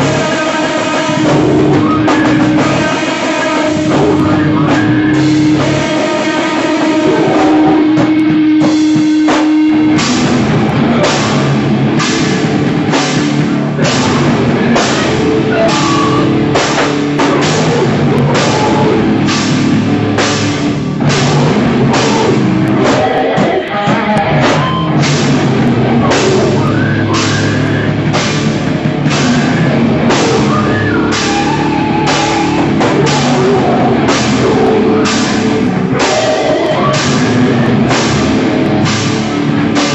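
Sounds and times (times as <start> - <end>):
heavy rock band playing: 0.0 - 39.9
held guitar note: 6.7 - 12.8, 13.6 - 39.9.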